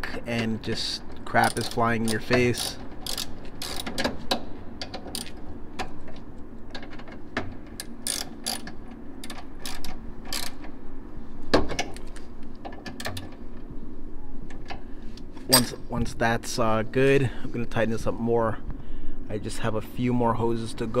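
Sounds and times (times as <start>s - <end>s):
ratchet wrench clicking: 1.4s - 4.0s, 5.1s - 5.4s, 7.8s - 10.6s.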